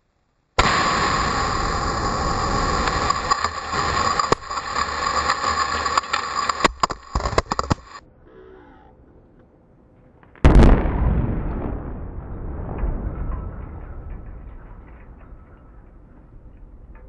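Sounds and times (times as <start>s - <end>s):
roar of blast and dust: 0.6s - 8.0s, 10.4s - 16.1s
sharp cracks: 0.6s - 8.0s.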